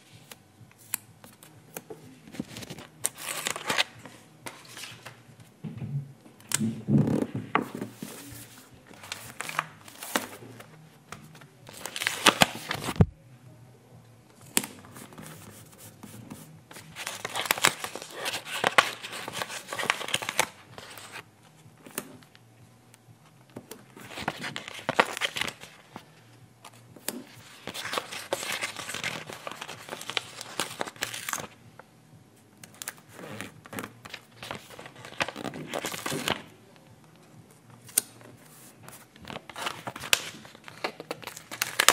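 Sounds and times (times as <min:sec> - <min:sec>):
paper crinkling: 0:07.6 - 0:10.6, 0:11.2 - 0:13.1, 0:14.6 - 0:21.2, 0:24.0 - 0:26.0, 0:27.2 - 0:31.6, 0:32.7 - 0:36.5, 0:37.9 - 0:41.9.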